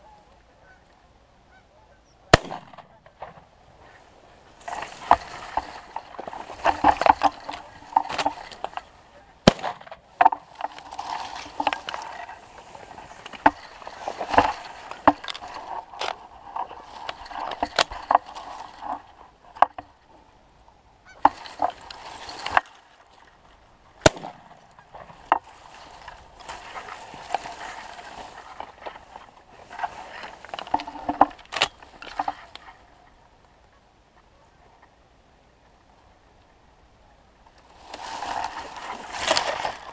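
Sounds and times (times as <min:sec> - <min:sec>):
geese honking and clucking: 0:00.0 - 0:20.2, 0:21.0 - 0:22.6, 0:24.0 - 0:34.9.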